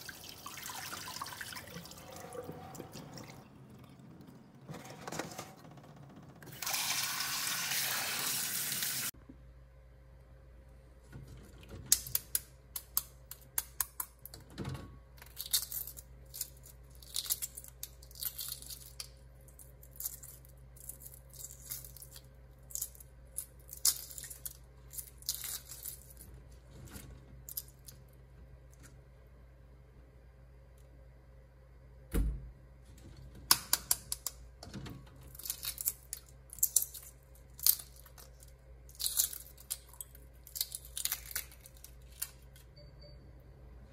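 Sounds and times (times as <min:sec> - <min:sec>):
eggshells cracking and peeling: 0:15.2 - 0:26.3, 0:35.2 - 0:42.6.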